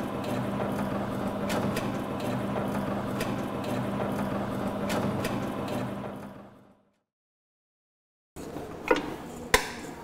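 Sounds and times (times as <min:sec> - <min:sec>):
mixer motor humming: 0:00.0 - 0:06.9.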